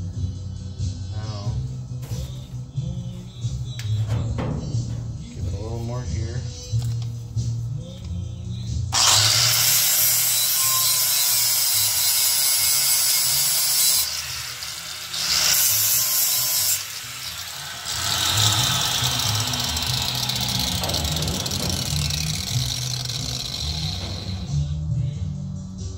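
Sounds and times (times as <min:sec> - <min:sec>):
background music beat: 0:00.0 - 0:10.4, 0:17.3 - 0:25.9
angle grinder grinding metal: 0:08.9 - 0:24.8.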